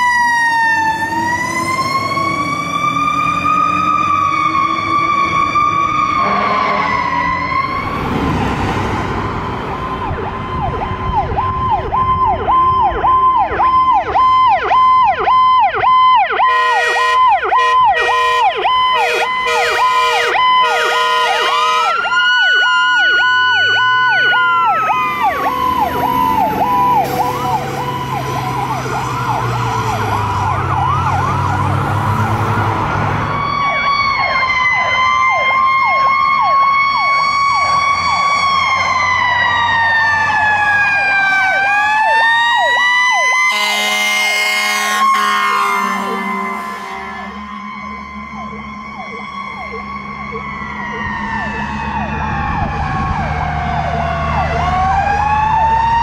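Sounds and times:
electronic siren yelp: 0:00.0 - 0:08.0, 0:09.3 - 0:56.0
siren wailing: 0:00.0 - 0:56.0
horn blasts: 0:06.2 - 0:07.1, 0:16.4 - 0:22.0, 0:43.4 - 0:47.7.

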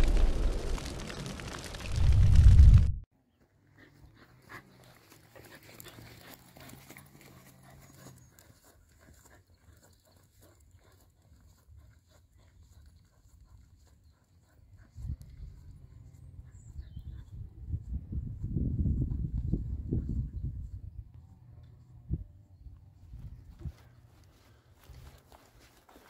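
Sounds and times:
dog panting: 0:03.8 - 0:17.2.

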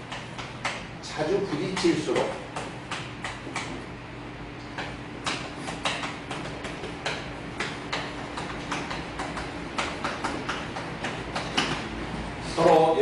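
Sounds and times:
chalk tapping and scratching on blackboard: 0:04.8 - 0:11.9.

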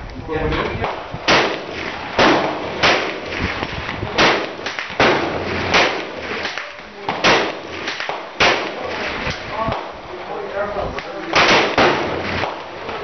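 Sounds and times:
rifle shots: 0:01.2 - 0:09.4, 0:11.3 - 0:12.7.

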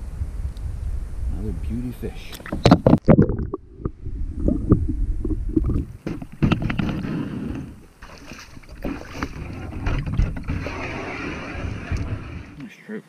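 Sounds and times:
steady hiss: 0:00.0 - 0:02.7
wind rumbling on microphone: 0:00.0 - 0:12.6
water sounds: 0:02.2 - 0:12.6.

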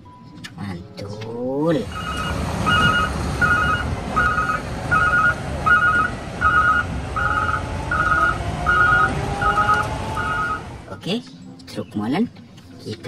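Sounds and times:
low diesel engine rumble: 0:01.8 - 0:10.9
truck reversing alarm beeping: 0:01.9 - 0:10.8
rising whine: 0:01.9 - 0:10.9.

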